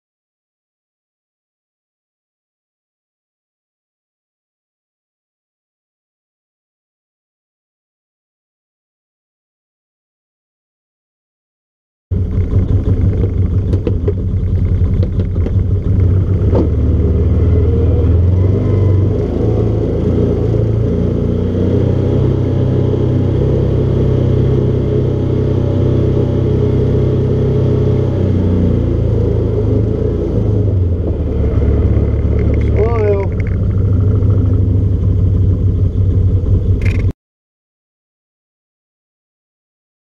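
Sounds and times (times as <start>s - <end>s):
utility vehicle engine humming: 12.1s - 37.2s.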